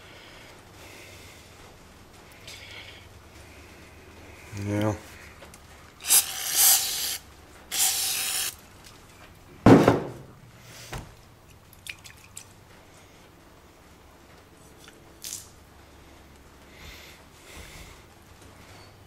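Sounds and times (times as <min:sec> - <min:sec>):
aerosol spray hissing: 0:06.0 - 0:08.6
loud knock: 0:09.7 - 0:10.3.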